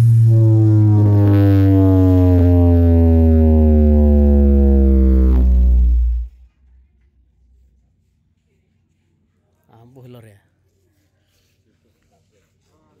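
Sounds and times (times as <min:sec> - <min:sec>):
loud electronic bass drone: 0:00.0 - 0:06.5.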